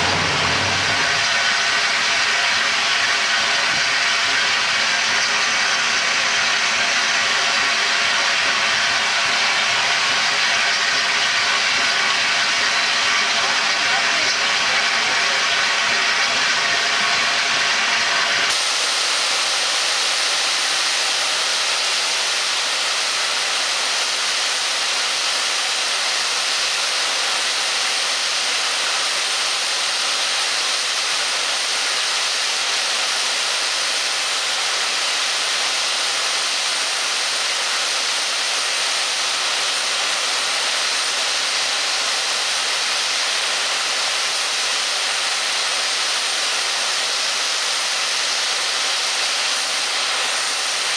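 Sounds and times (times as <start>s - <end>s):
steam hissing loudly: 0.0s - 50.9s.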